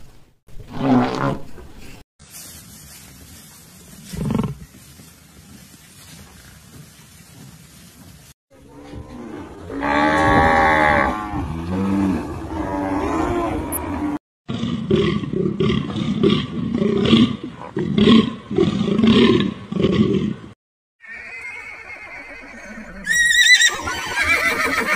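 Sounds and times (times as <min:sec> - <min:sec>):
cow mooing: 0:08.6 - 0:14.2.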